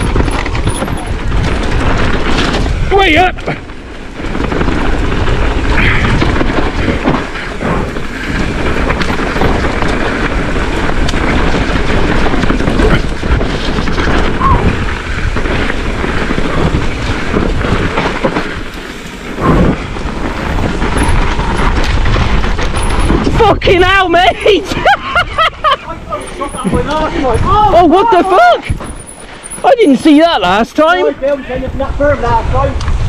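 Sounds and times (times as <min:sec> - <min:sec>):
wind rushing over microphone: 0:00.0 - 0:29.1, 0:30.3 - 0:33.0
bike tyres rumbling and rattling: 0:00.0 - 0:33.0
bike knocks on roots: 0:04.2 - 0:23.4.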